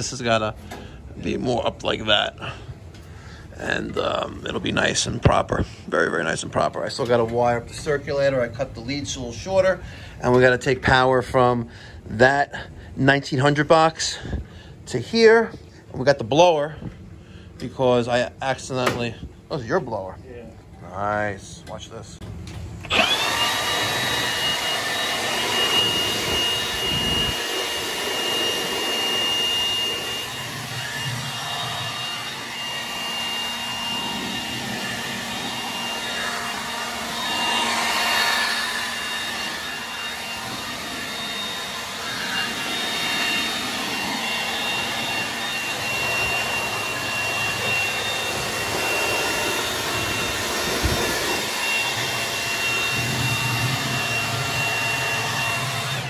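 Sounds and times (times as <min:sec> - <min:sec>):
cordless blower whining: 0:22.3 - 0:56.0.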